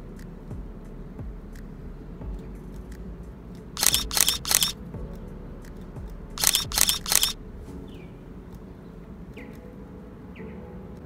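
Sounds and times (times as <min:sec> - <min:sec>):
camera shutter firing: 0:03.8 - 0:04.8, 0:06.4 - 0:07.4.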